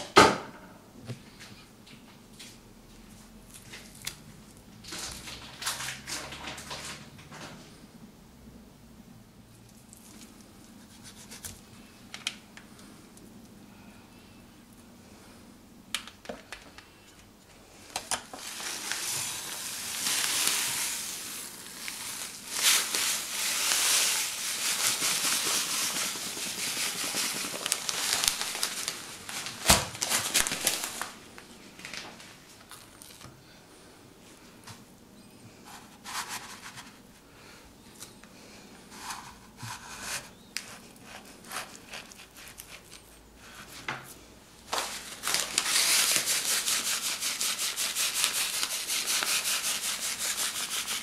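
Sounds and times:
salt pouring into dish: 18.5 - 28.5.

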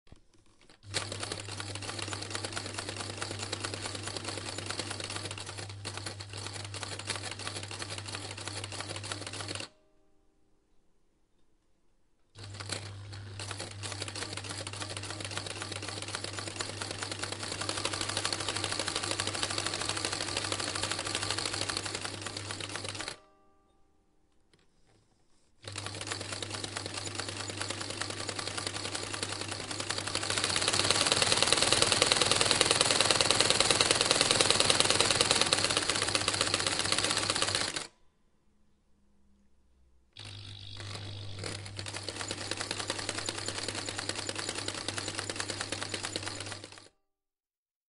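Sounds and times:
machine clattering: 25.6 - 37.9
electric motor hum: 40.2 - 43.7.

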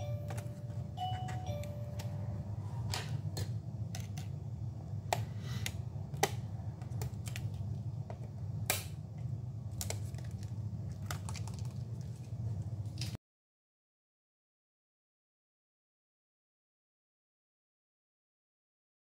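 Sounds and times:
steady low hum: 0.0 - 13.2.

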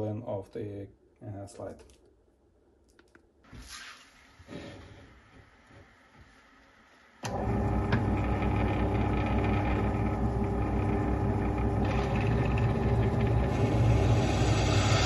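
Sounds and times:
drill press motor humming: 7.2 - 15.0.

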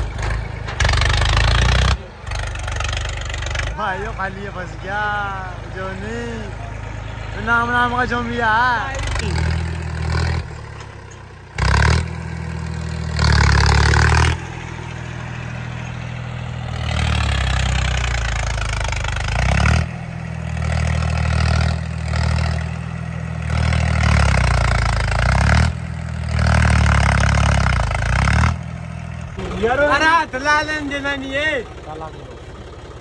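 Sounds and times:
tractor diesel engine revving: 0.0 - 33.0.

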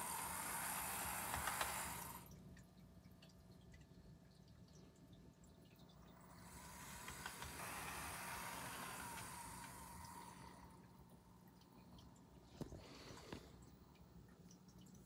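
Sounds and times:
model train motor whirring: 0.0 - 2.3, 6.1 - 11.1.

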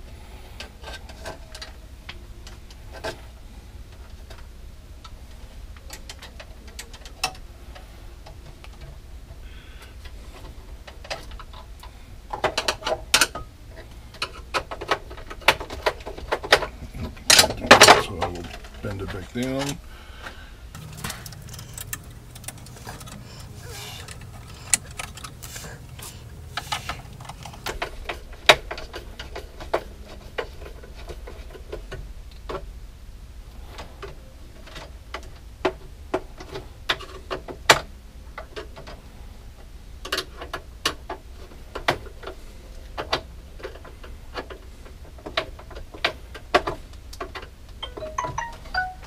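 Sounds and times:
faint low hum: 0.0 - 40.6
screwdriver clicking and scraping: 20.8 - 27.8.

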